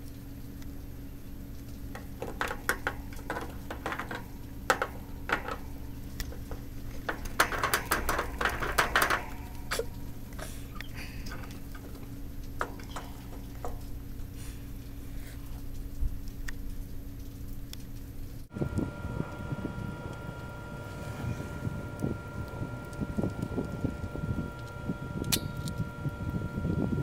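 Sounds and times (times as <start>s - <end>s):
steady low hum: 0.0s - 27.0s
claws rattling on wire cage: 1.9s - 14.0s.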